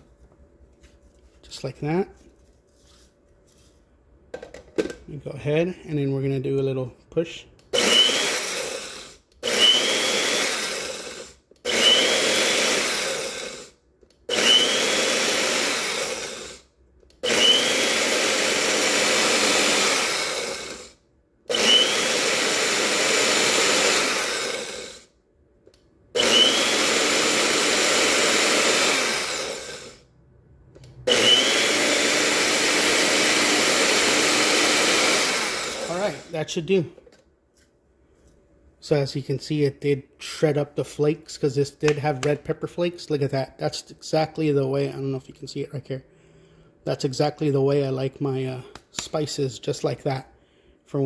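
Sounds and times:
blender grinding: 0:07.6 - 0:25.2, 0:26.2 - 0:30.1, 0:30.8 - 0:36.8.

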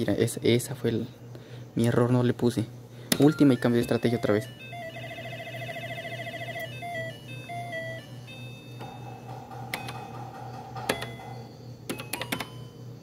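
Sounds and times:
slot machine beeping: 0:03.2 - 0:12.8.

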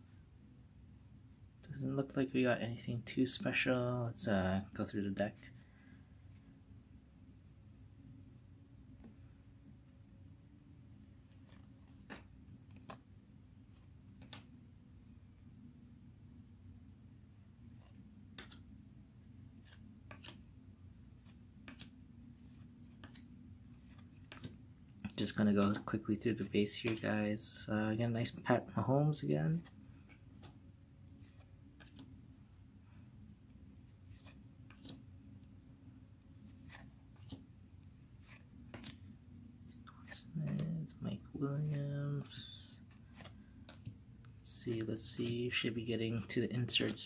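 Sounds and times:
faint low hum: 0:00.0 - 0:47.0
cards swishing: 0:11.1 - 0:14.6, 0:17.7 - 0:18.8, 0:19.4 - 0:27.7, 0:29.1 - 0:35.6, 0:36.2 - 0:47.0.

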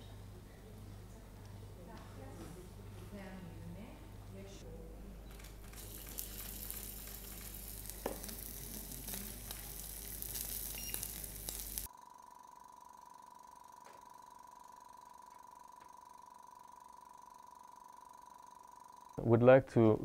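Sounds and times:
faint steady hum: 0:00.0 - 0:20.0
steak sizzling in frying pan: 0:05.8 - 0:11.9.

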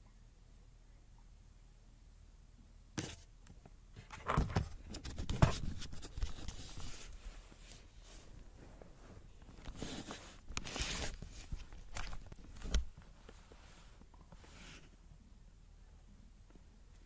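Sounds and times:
camera handling rustling: 0:09.5 - 0:13.0.

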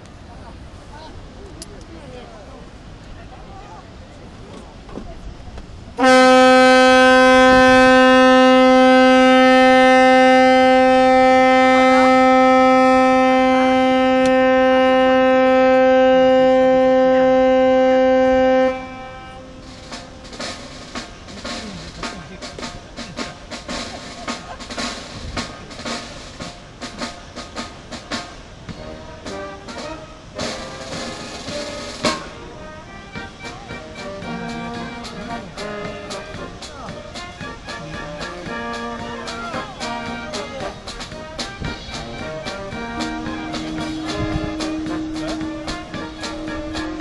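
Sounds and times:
ship's horn blast: 0:06.0 - 0:23.8, 0:28.2 - 0:47.0
drums playing steady beat: 0:06.0 - 0:47.0.

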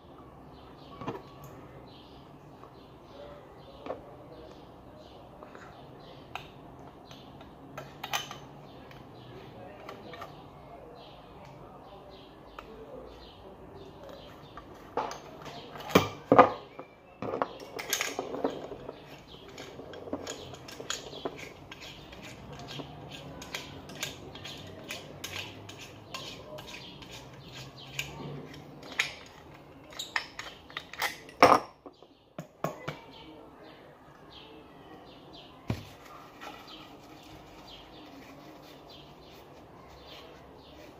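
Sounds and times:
metal tap parts clinking: 0:17.3 - 0:27.3.

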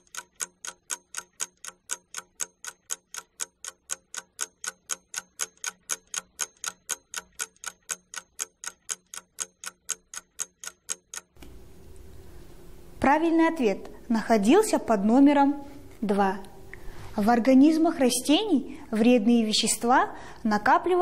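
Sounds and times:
clock ticking: 0:00.0 - 0:11.4.

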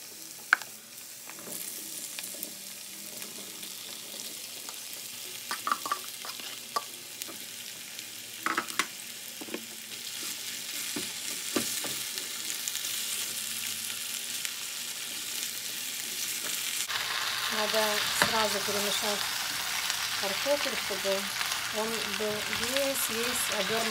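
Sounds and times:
potatoes sizzling in hot oil: 0:00.0 - 0:23.9
spatula scraping and stirring: 0:06.0 - 0:06.8.

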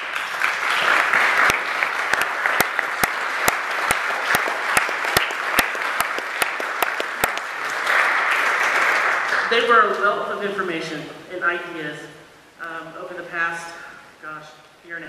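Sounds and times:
person clapping near microphone: 0:00.0 - 0:09.5
audience applauding: 0:00.0 - 0:09.7.

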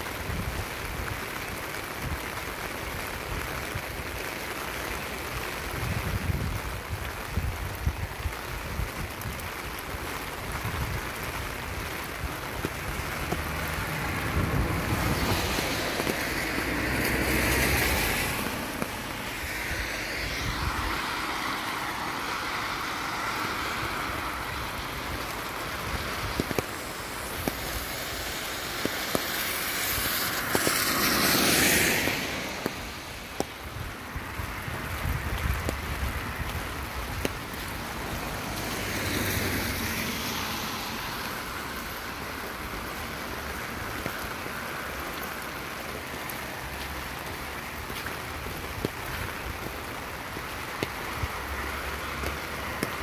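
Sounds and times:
steady rain: 0:00.0 - 0:53.0
wind rumbling on microphone: 0:00.0 - 0:53.0
tyres hissing through water: 0:11.2 - 0:35.4, 0:37.1 - 0:53.0.

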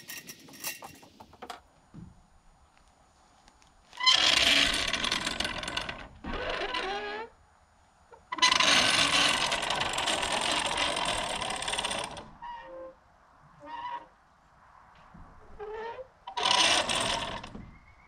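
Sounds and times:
metal carrier scraping on wooden boards: 0:15.6 - 0:17.8.

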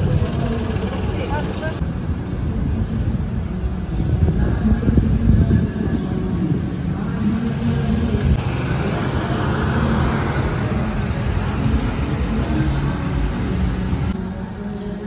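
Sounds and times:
low rumble of traffic: 0:00.0 - 0:15.0
bus passing close by: 0:06.9 - 0:14.4.

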